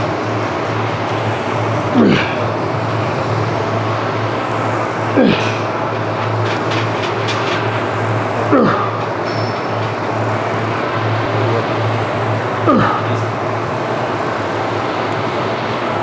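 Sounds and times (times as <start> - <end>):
man grunting: 1.8 - 2.5, 5.1 - 5.7, 8.4 - 9.0, 12.6 - 13.3.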